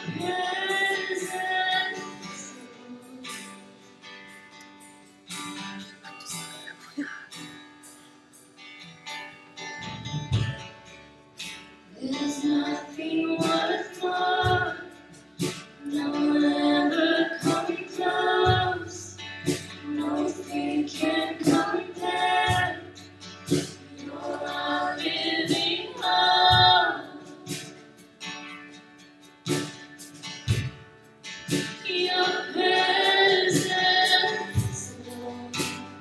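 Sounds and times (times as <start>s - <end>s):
two women singing: 0.0s - 3.9s, 11.9s - 27.9s, 31.8s - 36.0s
strummed acoustic guitar: 0.0s - 36.0s.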